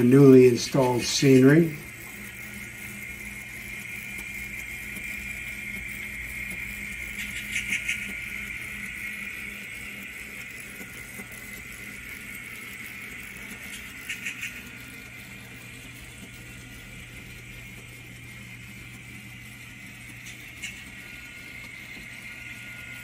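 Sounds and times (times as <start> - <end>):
model train running whirr: 0.0 - 23.0.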